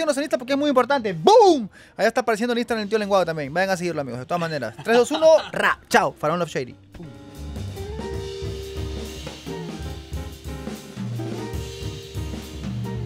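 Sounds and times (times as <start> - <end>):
instrumental music with drum beat: 7.0 - 13.0.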